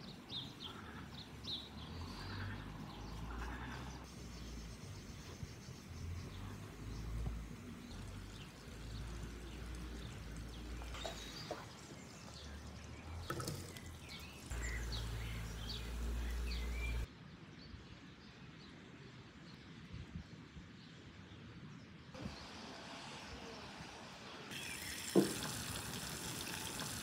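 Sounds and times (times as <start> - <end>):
birds chirping: 0.0 - 17.1.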